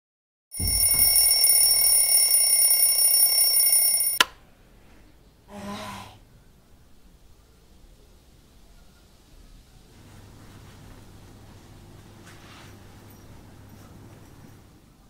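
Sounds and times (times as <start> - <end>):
alarm ringing: 0.6 - 4.2.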